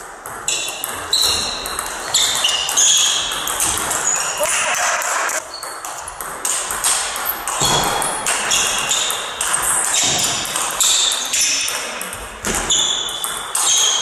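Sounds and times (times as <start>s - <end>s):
shoes squeaking on wooden floor: 0.4s - 6.2s.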